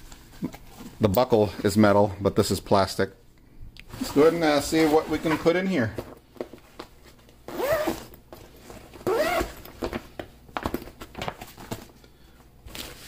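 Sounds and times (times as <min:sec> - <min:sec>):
bag fabric rustling: 0:03.9 - 0:10.0
zipper being pulled: 0:07.5 - 0:08.1, 0:09.0 - 0:09.6.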